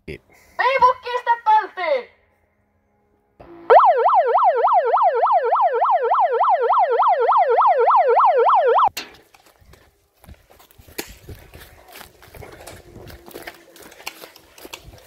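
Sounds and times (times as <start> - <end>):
megaphone siren wailing: 3.4 - 8.9.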